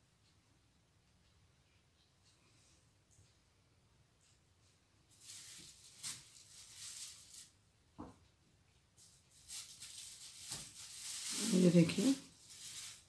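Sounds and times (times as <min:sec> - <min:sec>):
yarn rustling: 0:05.1 - 0:07.6, 0:09.0 - 0:13.0.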